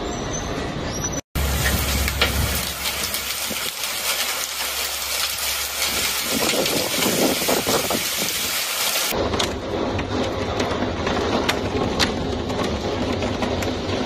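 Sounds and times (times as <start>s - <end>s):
heavy rain and hail pelting: 1.4s - 9.2s, 10.2s - 14.0s
wind rumbling on microphone: 5.2s - 14.0s.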